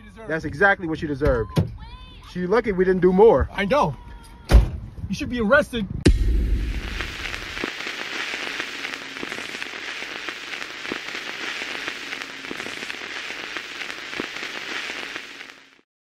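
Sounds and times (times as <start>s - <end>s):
crackling hiss with clicks: 6.4s - 15.9s.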